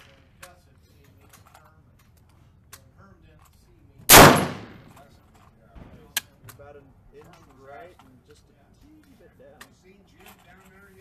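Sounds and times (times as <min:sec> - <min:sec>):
rifle handling clicks: 0:03.4 - 0:05.0
rifle shot with echo: 0:04.1 - 0:04.9.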